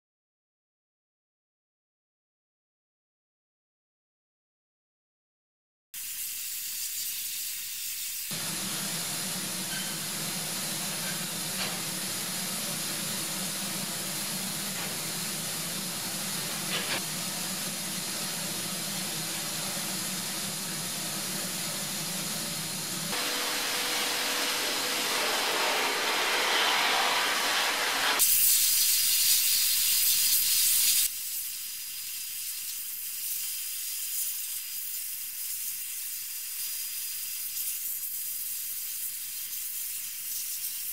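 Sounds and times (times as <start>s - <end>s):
blasting nozzle hissing: 6.0s - 31.1s.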